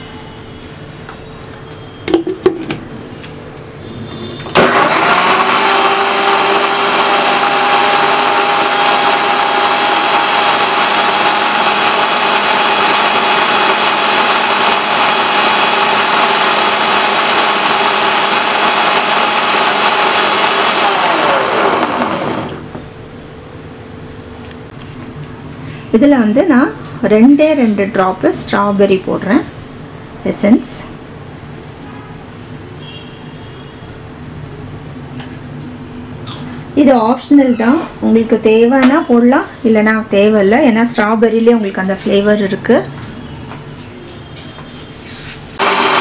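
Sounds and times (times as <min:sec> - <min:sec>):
electric blender whining: 0:04.5 - 0:22.8, 0:45.6 - 0:46.0.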